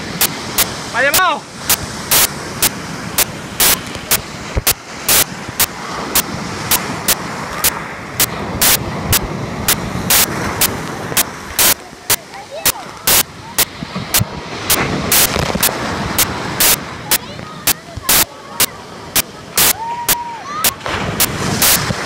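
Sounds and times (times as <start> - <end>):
sea surf rushing: 0.0 - 22.0
sharp clicks: 3.2 - 19.8.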